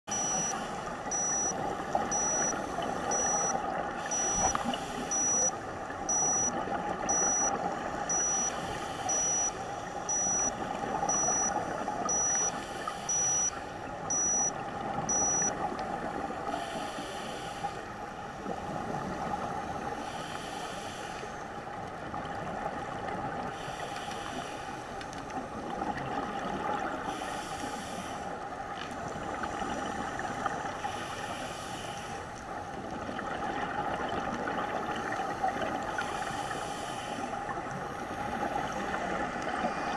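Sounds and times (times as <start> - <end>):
short high electronic beep: 0.1 - 0.5, 1.1 - 1.5, 2.1 - 2.5, 3.1 - 5.5, 6.1 - 6.5, 7.1 - 7.5, 8.1 - 8.5, 9.1 - 9.5, 10.1 - 10.5, 11.1 - 11.5, 12.1 - 12.5, 13.1 - 13.5, 14.1 - 14.5, 15.1 - 15.5
steady underwater hiss: 0.2 - 14.5, 15.3 - 21.8, 23.3 - 39.9.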